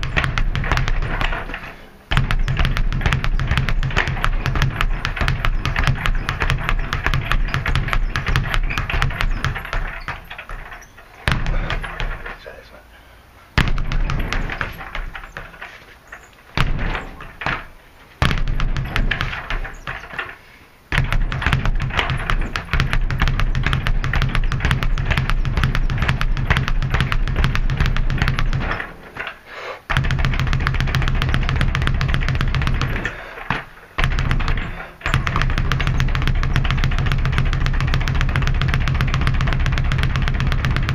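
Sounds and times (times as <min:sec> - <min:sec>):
speed bag rattling: 0:00.0 - 0:12.6, 0:13.6 - 0:40.9.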